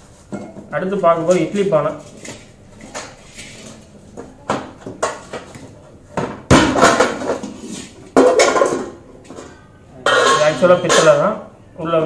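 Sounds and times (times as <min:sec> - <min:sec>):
metal lid clanking: 0:08.2 - 0:11.4.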